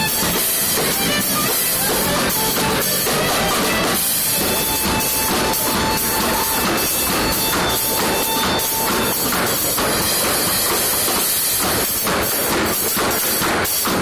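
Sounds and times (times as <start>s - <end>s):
live band with saxophone: 0.0s - 11.0s
tap shoes on wooden boards: 0.0s - 14.0s.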